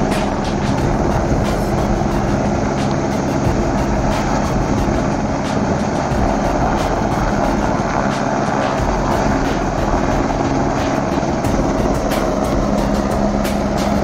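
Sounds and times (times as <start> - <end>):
helicopter hovering: 0.0 - 14.0.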